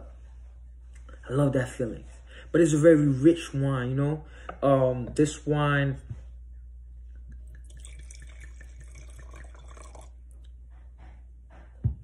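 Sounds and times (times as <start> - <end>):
wine trickling into a glass: 7.4 - 10.4.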